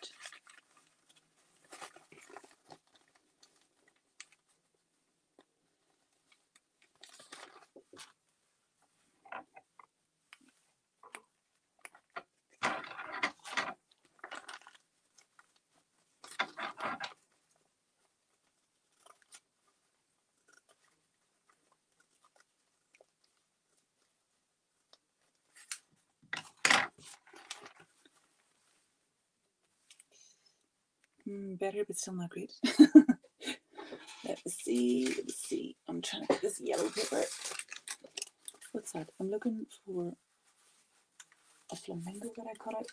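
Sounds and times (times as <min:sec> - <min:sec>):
paper tearing and rustling: 0:36.3 - 0:38.6.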